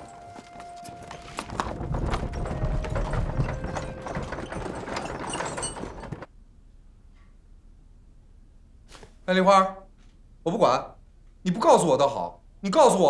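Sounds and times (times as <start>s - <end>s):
cart wheels rattling: 0.0s - 6.3s
hooves clattering: 0.0s - 6.3s.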